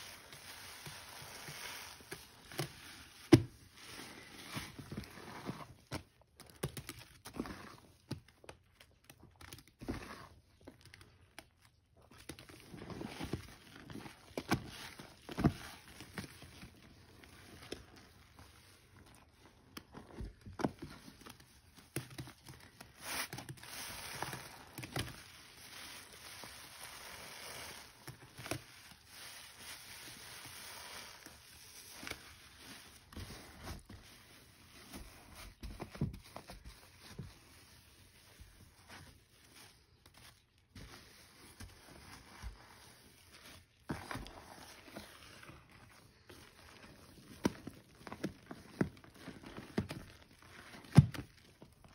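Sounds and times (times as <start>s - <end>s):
soapy sponge squelching: 0.0s - 6.0s, 12.0s - 20.7s, 21.3s - 35.7s, 37.0s - 51.9s.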